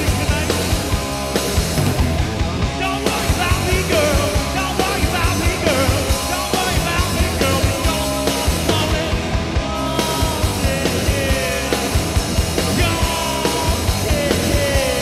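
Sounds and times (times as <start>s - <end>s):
bass guitar: 0.0s - 15.0s
drums: 0.0s - 15.0s
electric guitar: 0.0s - 15.0s
person singing: 2.8s - 12.0s, 12.7s - 15.0s.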